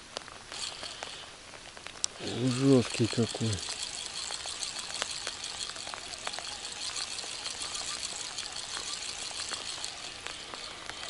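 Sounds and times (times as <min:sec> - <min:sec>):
steady hiss: 0:00.0 - 0:11.0
small clicks: 0:00.1 - 0:11.0.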